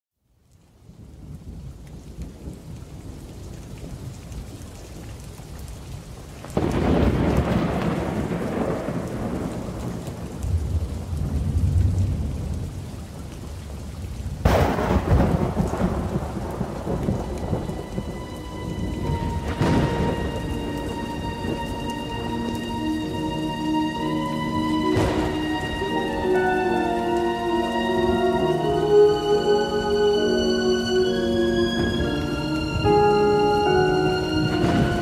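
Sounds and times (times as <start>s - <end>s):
steady rain: 0.2s - 35.0s
thunder claps rumbling: 6.5s - 30.0s, 31.1s - 35.0s
held musical notes: 17.1s - 35.0s.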